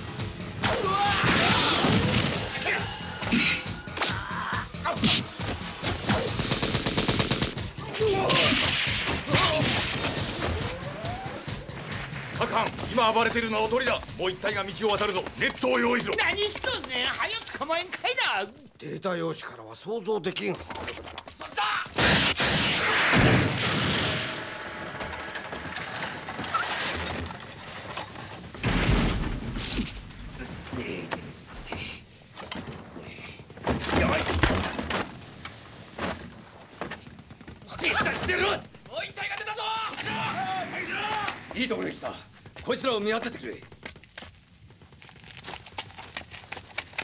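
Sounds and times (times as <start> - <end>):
loud truck crash: 22.0 - 30.4.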